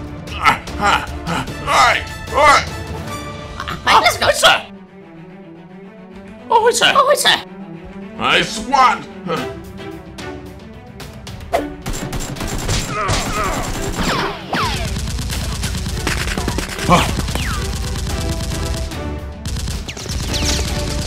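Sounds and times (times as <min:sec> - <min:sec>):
background music: 0:00.0 - 0:21.0
automatic gunfire: 0:11.9 - 0:21.0.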